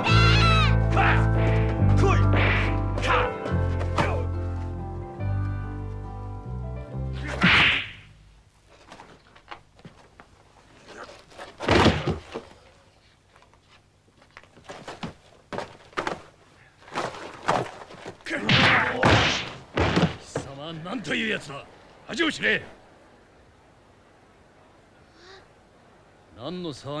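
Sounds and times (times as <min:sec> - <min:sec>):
sharp blows: 0:07.2 - 0:08.1, 0:18.3 - 0:20.3
heavy thud: 0:11.6 - 0:12.4, 0:18.4 - 0:20.5.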